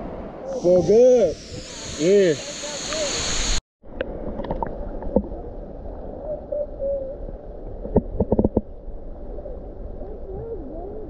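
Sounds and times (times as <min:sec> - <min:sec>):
muffled underwater water rumble: 0:03.8 - 0:11.0
underwater knocks: 0:07.8 - 0:08.7.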